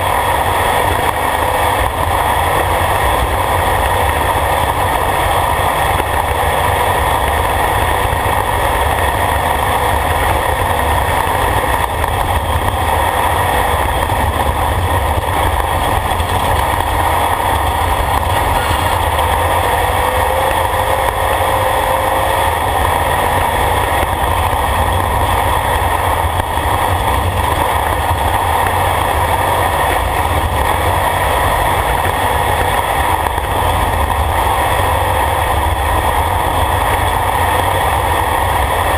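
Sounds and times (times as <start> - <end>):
race vehicle engine running: 0.0 - 38.9
tyres on gravel: 9.4 - 37.1.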